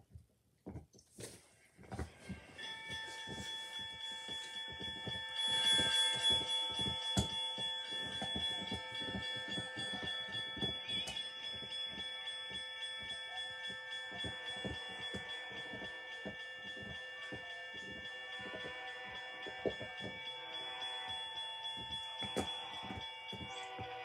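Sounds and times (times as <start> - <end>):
crossing signal bell ringing: 2.2 - 24.0.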